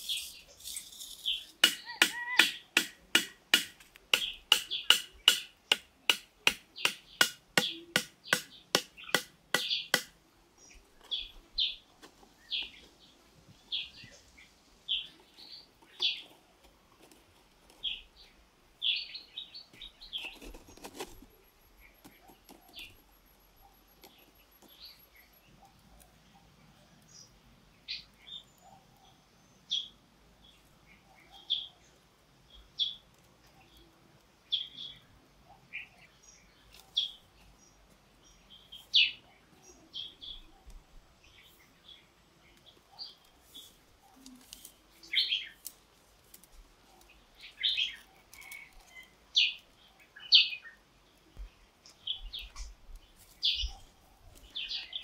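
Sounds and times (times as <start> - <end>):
bird chirping: 0.0 - 2.8, 6.7 - 10.0, 17.7 - 45.7, 46.9 - 55.0
stakes pounded into ground: 1.2 - 10.1.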